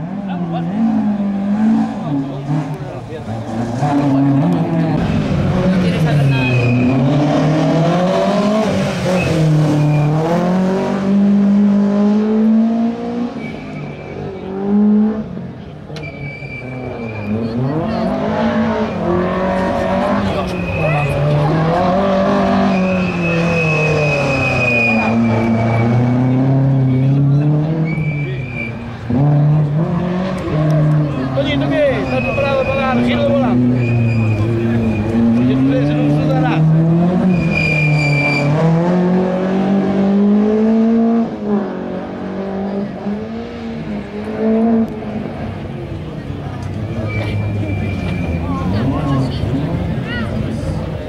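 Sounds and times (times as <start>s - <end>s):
car engine revving hard: 0.0s - 15.6s, 16.7s - 28.1s, 28.9s - 50.0s
tyres squealing: 19.3s - 27.2s, 27.8s - 28.9s, 30.7s - 36.4s, 37.1s - 38.7s, 46.7s - 49.3s.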